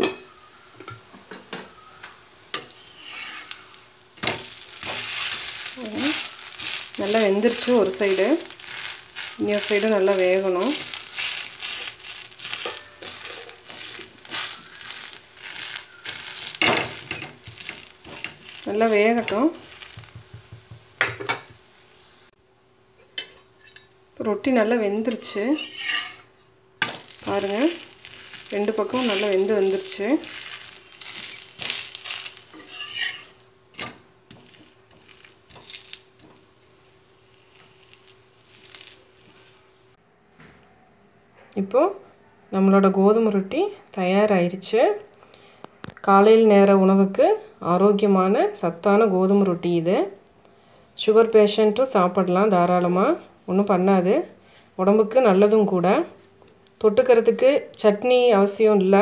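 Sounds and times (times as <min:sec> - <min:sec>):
roti sizzling in oil: 0:00.0 - 0:22.4, 0:25.0 - 0:40.0
metal spatula scraping griddle: 0:02.6 - 0:20.1, 0:25.2 - 0:36.3.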